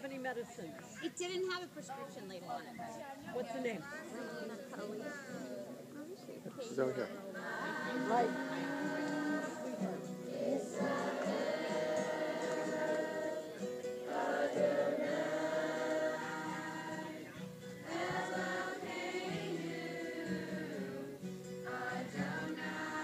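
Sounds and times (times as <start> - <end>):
children and adults singing: 7.3 - 23.0
acoustic guitar strumming: 7.4 - 23.0.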